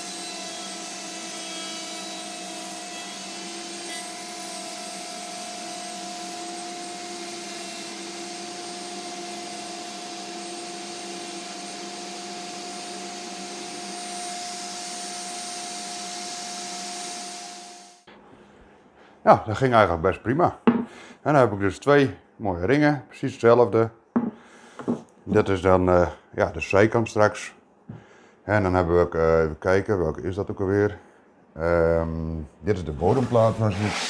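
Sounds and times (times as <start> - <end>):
electric router whining: 0.0 - 18.1.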